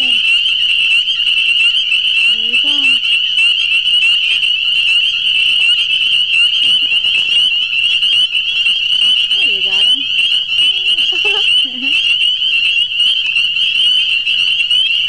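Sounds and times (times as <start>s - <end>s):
chorus of frogs calling: 0.0s - 15.0s.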